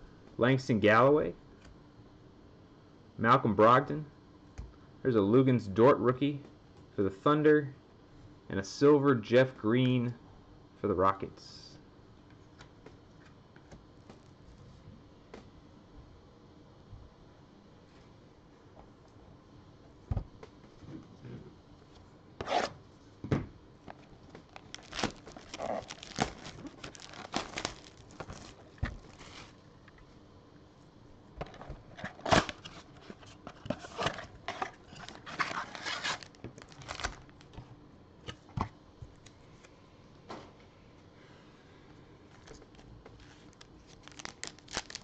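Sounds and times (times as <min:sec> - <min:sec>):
foil packs crinkling: 0:23.9 - 0:29.6, 0:34.8 - 0:37.5, 0:42.4 - 0:45.0
cardboard tearing: 0:24.5 - 0:29.5, 0:34.9 - 0:37.2, 0:43.2 - 0:45.0.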